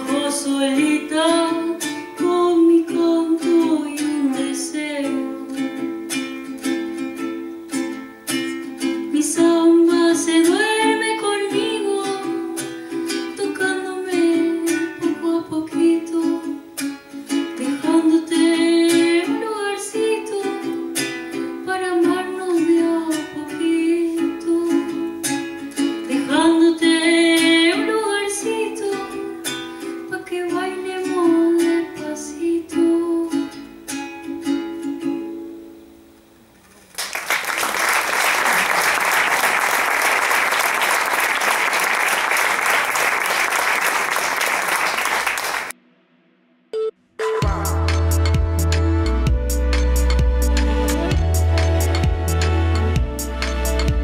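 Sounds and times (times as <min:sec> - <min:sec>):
woman singing: 0:00.0 - 0:05.9, 0:09.1 - 0:16.7, 0:17.6 - 0:25.2, 0:26.0 - 0:33.6
audience applause: 0:36.9 - 0:45.7.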